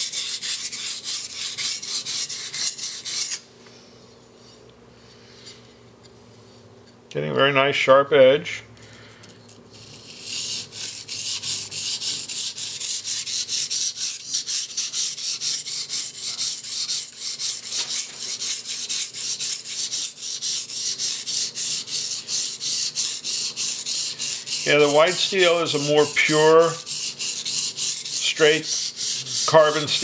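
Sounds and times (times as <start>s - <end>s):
blade scraping on a whetstone: 9.5s - 30.0s.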